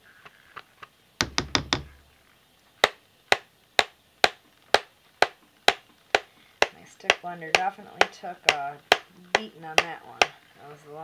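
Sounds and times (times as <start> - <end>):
utensil knocking on pot: 1.2 - 1.9.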